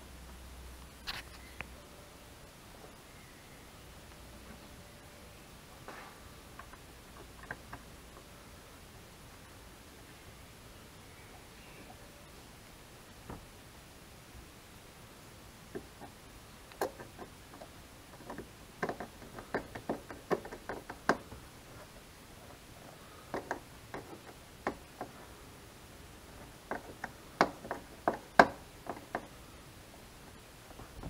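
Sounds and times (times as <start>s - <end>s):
metal knocking on plastic: 26.7s - 29.3s.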